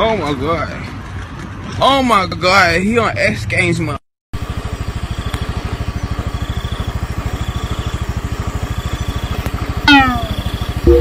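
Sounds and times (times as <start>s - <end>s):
vehicle engine idling: 4.4s - 11.0s.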